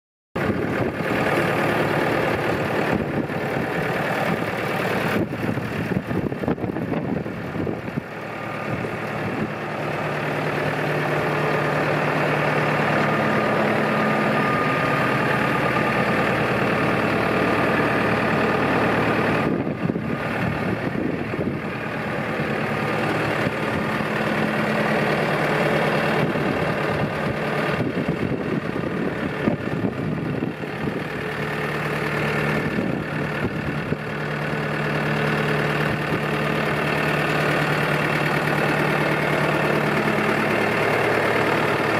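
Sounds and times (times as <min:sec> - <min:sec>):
tractor diesel engine idling: 0:00.4 - 0:41.9.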